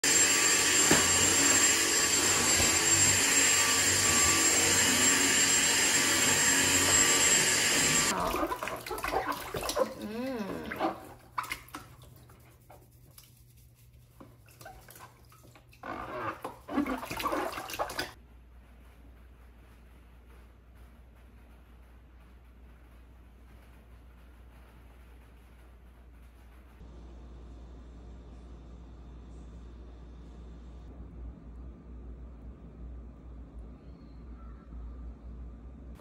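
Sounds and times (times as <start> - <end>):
bath water splashing: 8.1 - 18.2.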